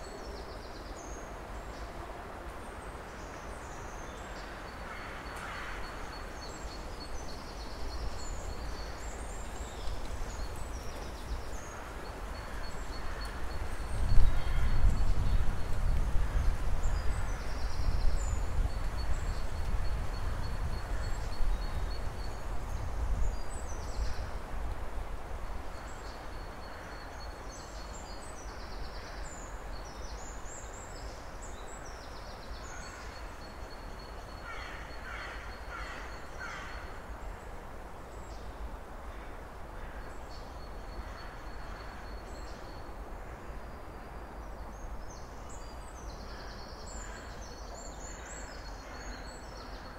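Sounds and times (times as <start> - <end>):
wind rumble on microphone: 6.9 - 26.8.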